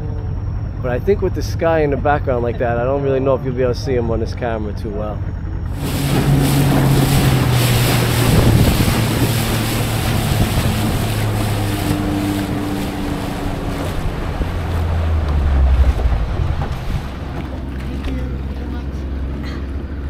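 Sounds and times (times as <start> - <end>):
boat engine running: 0.0 - 20.0
water rushing past a hull: 5.6 - 20.0
wind buffeting the microphone: 5.7 - 18.7.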